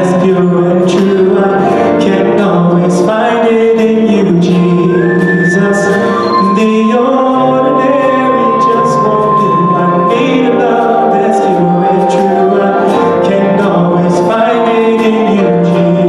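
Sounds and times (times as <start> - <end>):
male vocal group singing gospel: 0.0 - 16.0.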